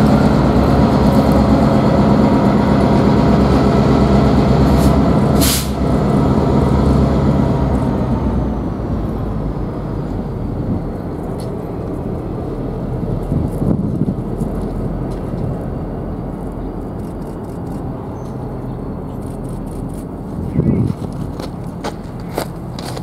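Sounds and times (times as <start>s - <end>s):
diesel locomotive engine drone: 0.0s - 23.0s
freight train rumble: 0.0s - 23.0s
sharp air hiss: 4.8s - 5.8s.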